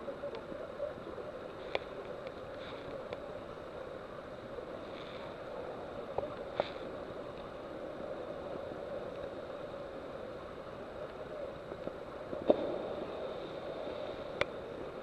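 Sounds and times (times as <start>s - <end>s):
seawater washing in cave: 0.0s - 15.0s.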